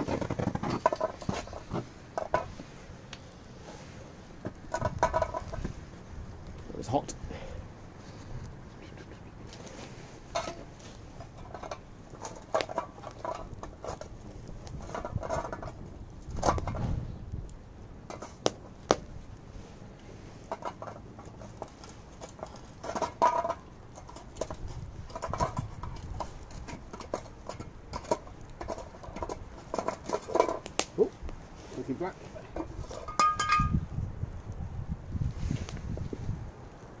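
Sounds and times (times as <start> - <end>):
metal tin scraping and knocking: 0.0 - 2.6, 4.4 - 5.8, 10.3 - 16.9, 18.1 - 18.5, 20.5 - 30.7, 32.4 - 33.8
wood fire crackling and popping: 0.0 - 37.0.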